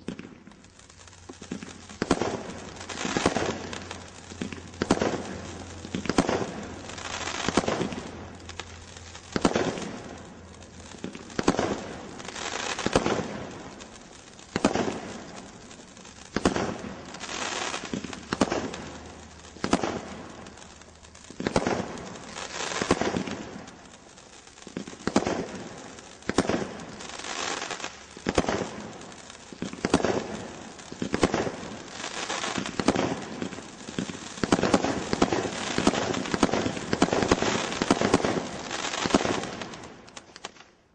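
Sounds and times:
roman candle firing shots: 0.0s - 13.8s, 16.3s - 20.5s, 27.6s - 40.6s
crackle of bursting stars: 0.0s - 40.9s.

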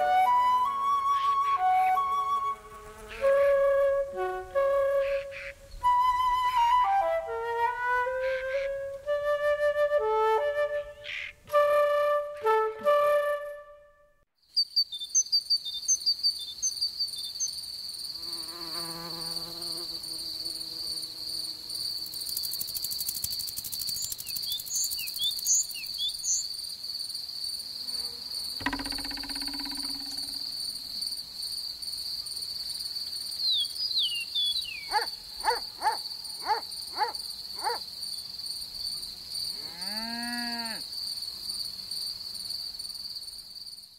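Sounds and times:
short insect chirps: 14.4s - 43.9s
high insect trill: 14.5s - 43.9s.

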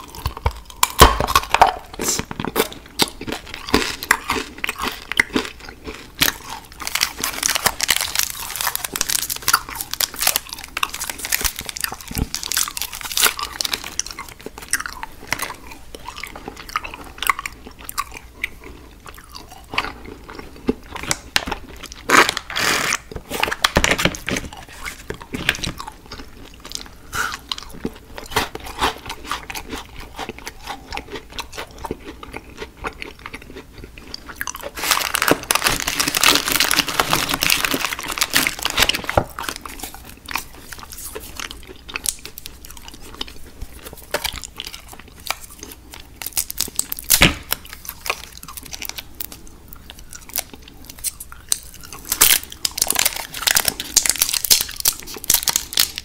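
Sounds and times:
candy crunching: 0.0s - 56.0s.

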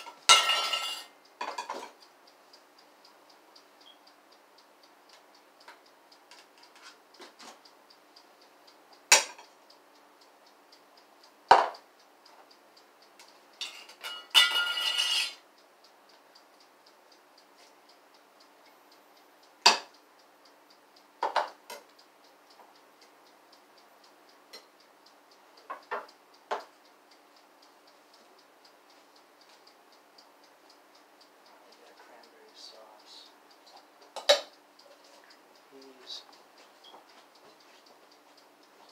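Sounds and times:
dishes and utensils clinking: 0.0s - 2.0s, 13.6s - 15.4s
faint fast ticking: 15.4s - 38.9s.

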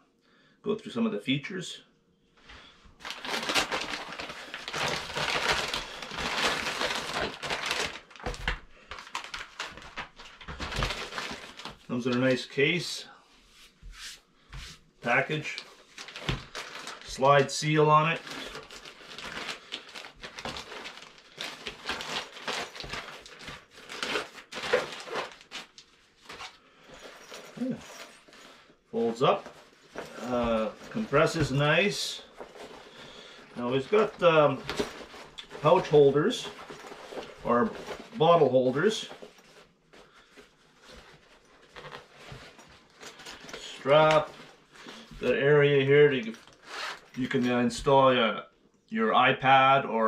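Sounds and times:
fabric bag handling: 3.0s - 11.9s, 15.9s - 17.2s, 18.0s - 45.3s, 46.2s - 47.4s
paper crinkling and rustling: 3.0s - 12.4s, 15.0s - 47.8s.

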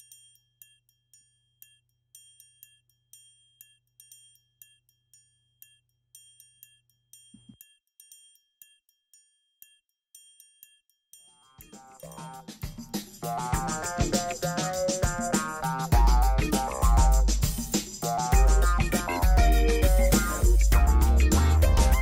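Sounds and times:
tinkling bell-like music: 10.2s - 22.0s.

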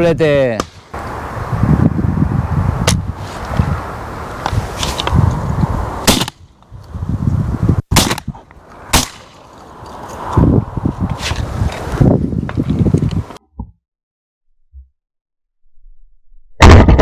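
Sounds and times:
shotgun shots echoing: 6.1s - 6.4s, 7.9s - 8.3s, 8.9s - 9.4s.

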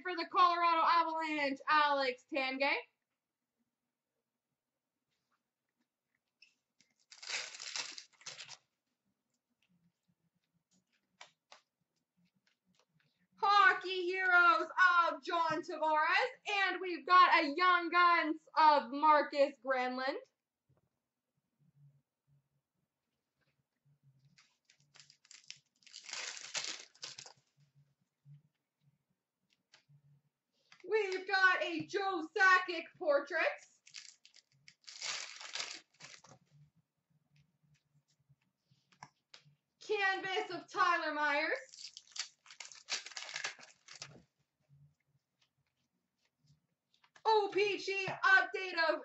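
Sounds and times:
foil wrapper crinkling: 6.9s - 8.6s, 24.4s - 27.4s, 33.8s - 36.4s, 41.6s - 44.2s.

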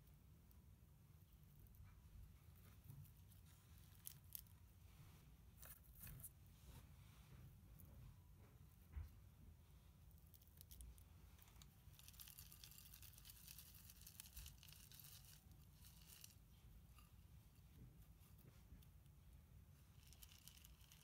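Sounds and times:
potting mix rustling into pot: 11.4s - 17.2s.

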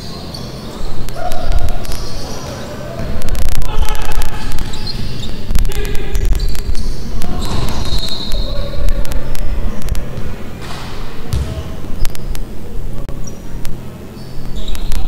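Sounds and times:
players calling out: 0.0s - 10.6s
basketball bouncing on hardwood: 11.3s - 11.7s.

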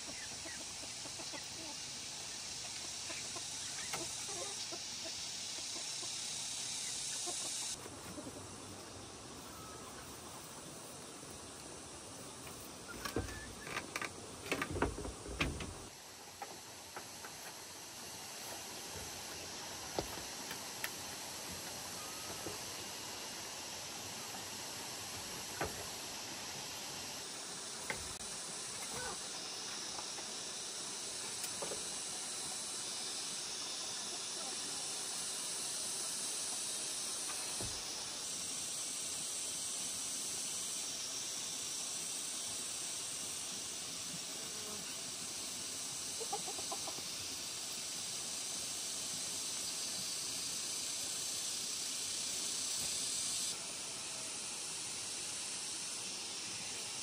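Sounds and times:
chickens clucking faintly: 0.0s - 11.6s, 28.7s - 30.0s, 46.0s - 47.4s
steady high hiss: 0.0s - 57.0s.

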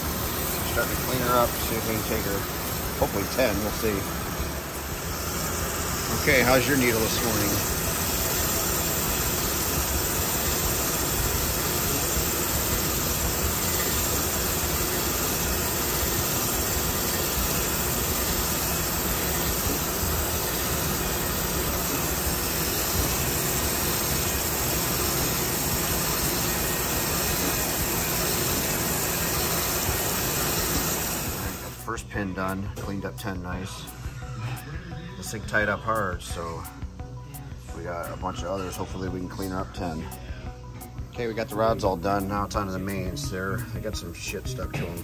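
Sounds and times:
crankshaft grinder running: 0.0s - 31.9s.

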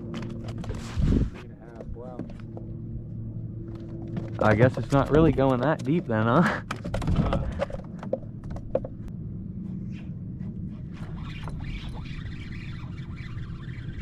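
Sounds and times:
low wind: 0.0s - 14.0s
water around a boat: 10.7s - 14.0s.

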